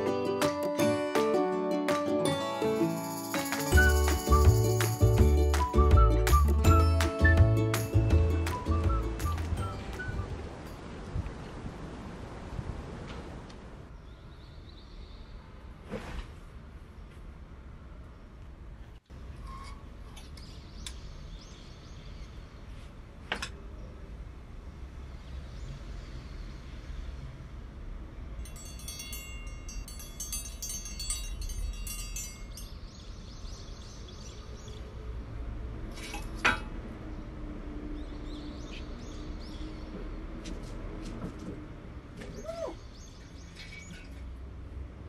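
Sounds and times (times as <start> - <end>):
chime ringing: 2.5 - 5.2, 28.4 - 33.0.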